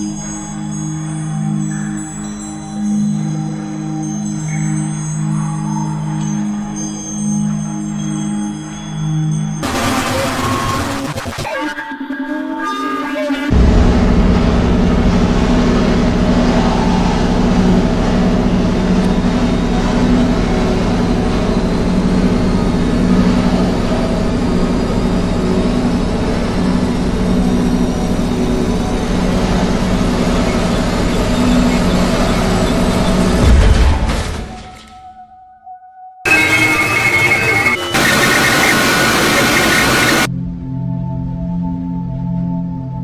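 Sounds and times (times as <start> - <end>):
high whine rising in pitch: 13.5 - 33.5, 36.3 - 40.4
jet engine deep rumble: 13.5 - 33.6.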